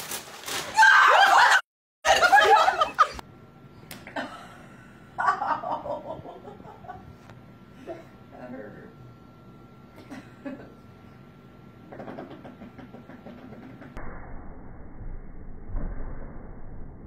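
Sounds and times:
people laughing: 1.2 - 3.2, 5.2 - 7.0.

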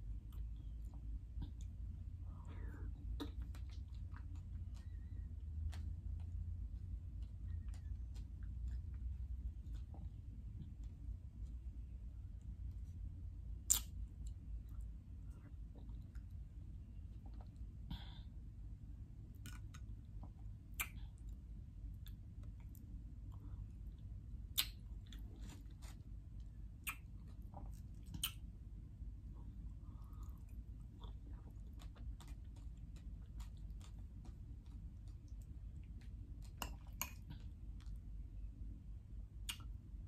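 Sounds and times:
steady low hum: 0.0 - 40.0
close-up chewing of fruit: 3.0 - 11.5, 19.3 - 28.5, 29.3 - 38.2
sharp wet clicks: 13.6 - 14.4, 24.5 - 24.8, 26.8 - 28.5.

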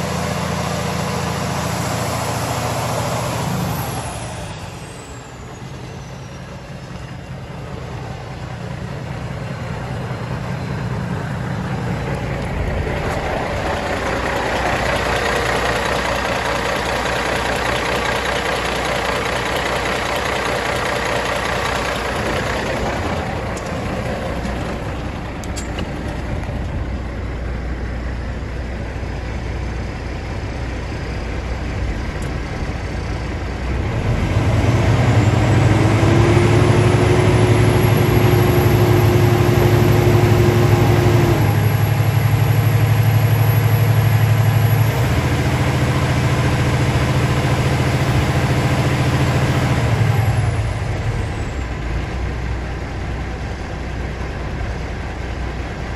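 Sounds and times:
high whine: 0.0 - 34.2
diesel truck engine revving: 0.0 - 55.9.

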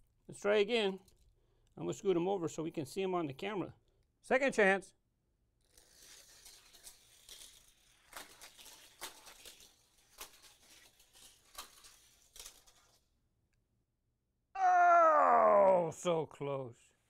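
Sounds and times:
sharp clicks of toy track: 5.6 - 13.1
toy car rattling on plastic track: 5.6 - 13.1.

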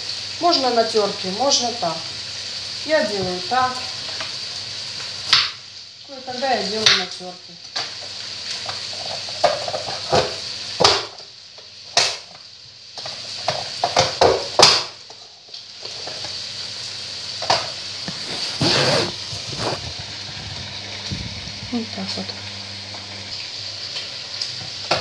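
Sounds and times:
meat and onion sizzling: 0.0 - 25.0.

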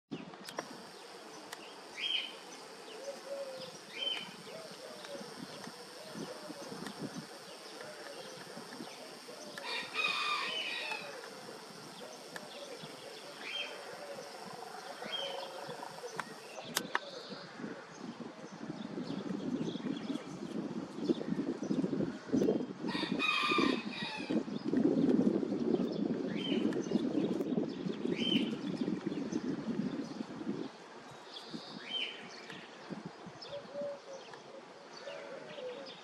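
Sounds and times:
small birds chirping: 0.4 - 17.5
high insect buzz: 0.5 - 16.8
low repeating bird call: 0.6 - 17.6
rooster crowing: 9.1 - 12.8, 22.9 - 24.4.

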